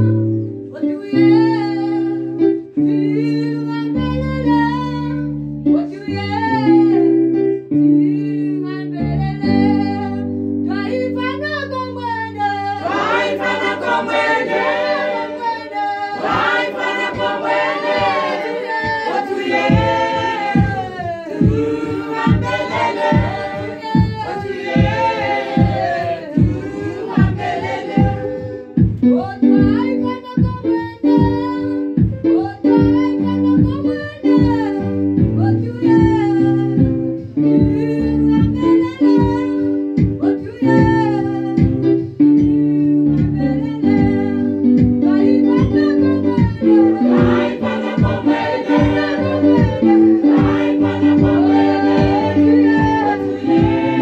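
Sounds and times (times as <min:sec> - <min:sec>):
instrumental backing: 0:00.0 - 0:54.0
choir singing gospel: 0:12.4 - 0:29.0, 0:45.1 - 0:54.0
steady beat: 0:12.8 - 0:15.6, 0:16.2 - 0:29.8, 0:46.4 - 0:54.0
lead voice singing: 0:12.8 - 0:29.2, 0:46.5 - 0:54.0.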